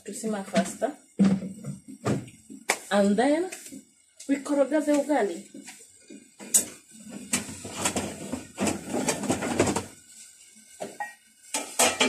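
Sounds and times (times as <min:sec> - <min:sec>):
kitchen things rustling and knocking: 0:00.3 - 0:02.8, 0:04.9 - 0:12.0.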